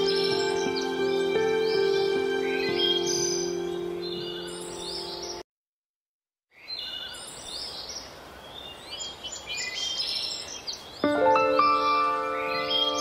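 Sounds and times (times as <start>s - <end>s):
steady outdoor hiss: 0.0s - 5.3s, 7.1s - 13.0s
background music: 0.0s - 5.4s, 11.0s - 13.0s
birds chirping: 0.0s - 5.4s, 6.6s - 13.0s.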